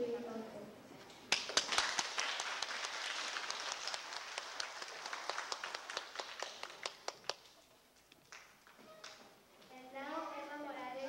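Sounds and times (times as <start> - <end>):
sharp individual claps: 1.2 - 9.2
audience applauding: 1.3 - 7.7.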